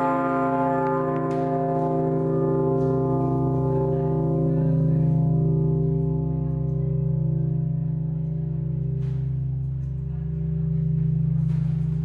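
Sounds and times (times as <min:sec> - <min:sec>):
great bell ringing: 0:00.0 - 0:12.0.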